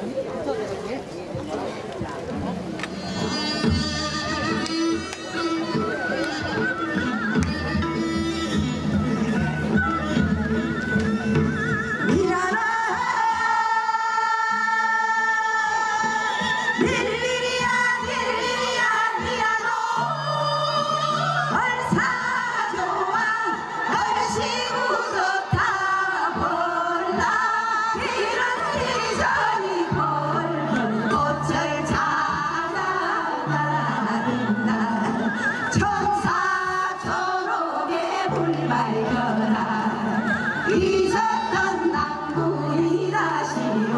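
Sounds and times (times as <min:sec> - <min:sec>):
women singing folk song together: 0:12.1 - 0:43.9.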